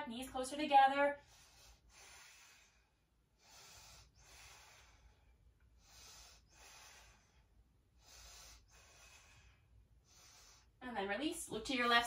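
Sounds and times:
woman breathing heavily: 0:01.2 - 0:10.8.

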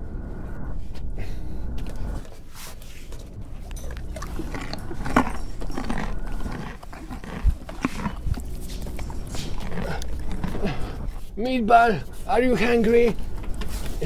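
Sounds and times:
dog crunching a carrot: 0:03.5 - 0:11.3.

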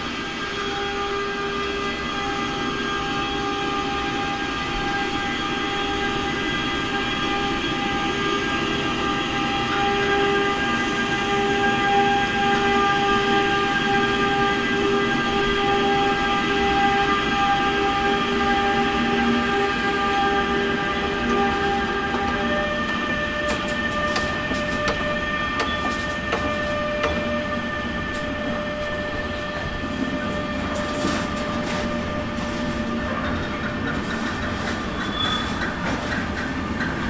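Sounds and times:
electric locomotive humming: 0:00.0 - 0:37.0
wheels rumbling on rail: 0:00.0 - 0:37.0.

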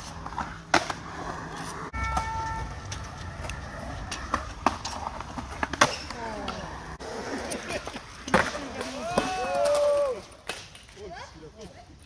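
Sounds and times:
skateboard wheels rolling: 0:00.0 - 0:11.0
skateboards clacking on concrete: 0:00.0 - 0:11.8.

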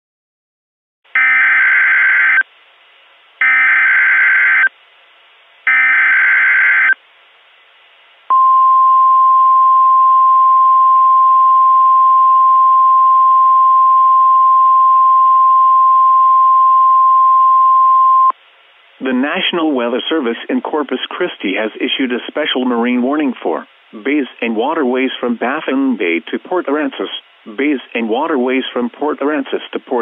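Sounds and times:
steady attention tone: 0:08.3 - 0:18.3.

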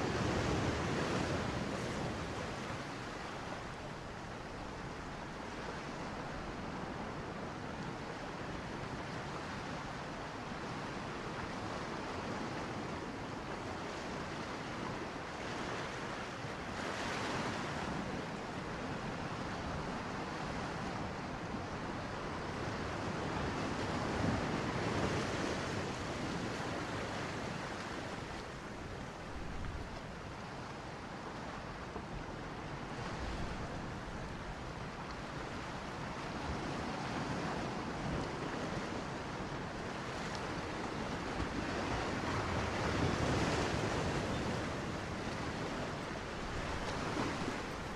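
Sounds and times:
underwater rushing water: 0:37.8 - 0:47.9.

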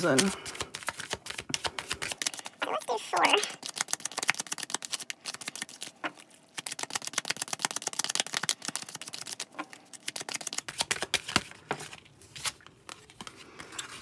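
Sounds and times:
cards being shuffled by hand: 0:00.0 - 0:14.0.

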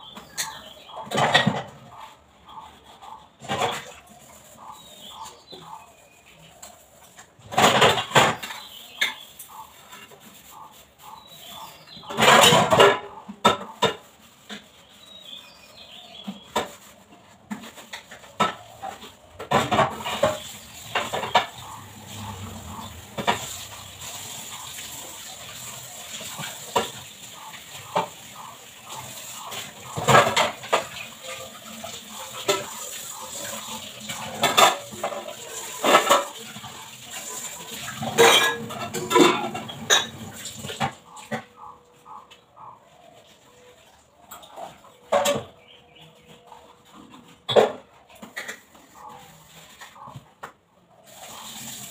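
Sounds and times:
steel dishes clattering in sink: 0:00.3 - 0:01.8, 0:11.1 - 0:14.7, 0:17.5 - 0:41.6
tap water running: 0:19.6 - 0:41.2, 0:51.0 - 0:51.9.

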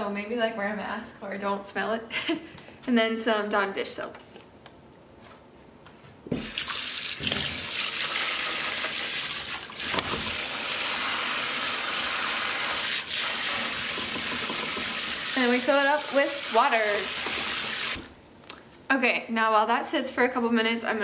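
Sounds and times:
water running into sink: 0:06.4 - 0:18.1.

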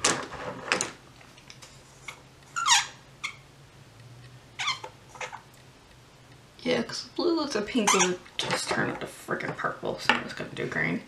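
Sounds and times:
short squeaks: 0:02.5 - 0:03.5, 0:04.6 - 0:05.5.

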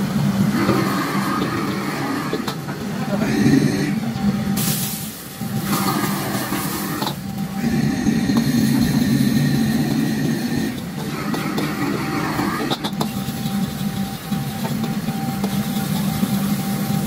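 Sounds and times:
gas burner rushing: 0:00.0 - 0:17.0
beans sizzling in a wok: 0:04.6 - 0:07.5, 0:12.1 - 0:17.0.

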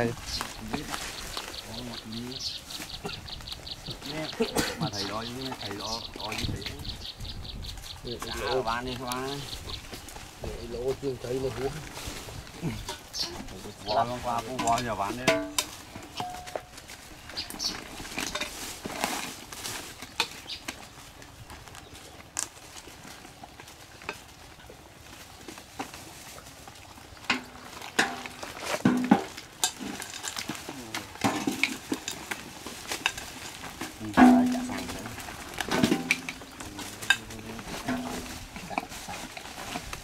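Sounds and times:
fish tossed into basins: 0:27.2 - 0:40.0.

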